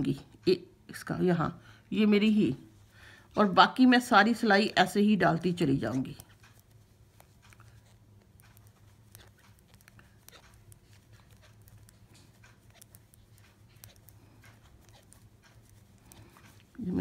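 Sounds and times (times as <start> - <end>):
low steady hum: 0.0 - 17.0
knitting needles clicking: 4.8 - 17.0.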